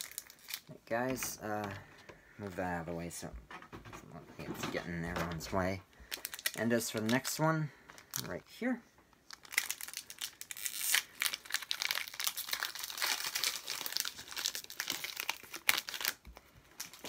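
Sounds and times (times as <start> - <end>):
foil wrapper crinkling: 0.0 - 1.3, 6.0 - 8.5, 9.3 - 17.0.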